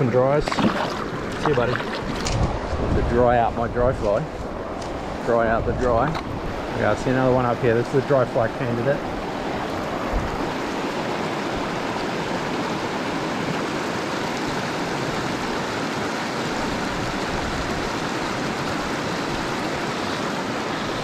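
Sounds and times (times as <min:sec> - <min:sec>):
river rushing over stones: 0:00.0 - 0:03.5, 0:06.2 - 0:21.0.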